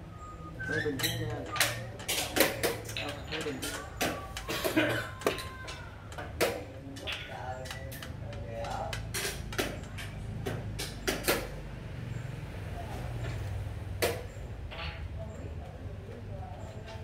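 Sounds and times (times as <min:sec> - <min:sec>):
low voices: 0:00.0 - 0:17.0
wooden game pieces clacking: 0:01.0 - 0:11.5.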